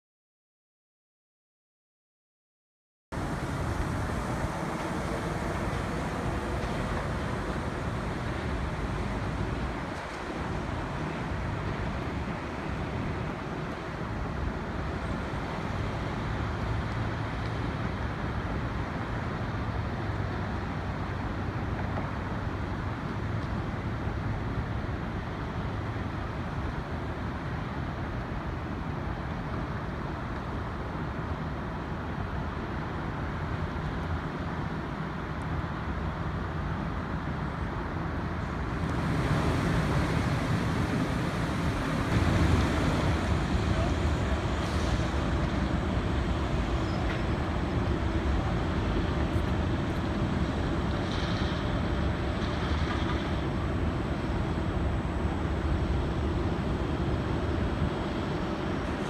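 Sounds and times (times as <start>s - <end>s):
road traffic: 3.1s - 59.0s
wind: 3.1s - 59.0s.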